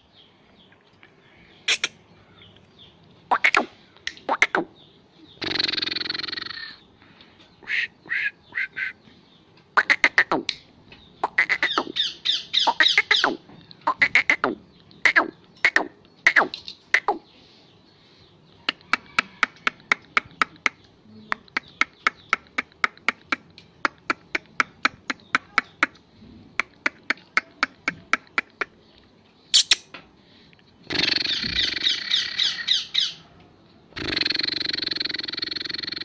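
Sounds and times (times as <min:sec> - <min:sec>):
bird harsh rasping squawks: 0:01.6 - 0:02.0, 0:03.3 - 0:04.7, 0:05.4 - 0:06.8, 0:07.6 - 0:09.0, 0:09.7 - 0:10.5, 0:11.2 - 0:17.2, 0:29.5 - 0:29.9, 0:30.9 - 0:33.2
bird sharp clicking calls: 0:01.6 - 0:02.7, 0:03.3 - 0:04.7, 0:05.3 - 0:06.8, 0:07.6 - 0:17.2, 0:18.6 - 0:30.0, 0:30.8 - 0:33.2, 0:33.9 - 0:36.0.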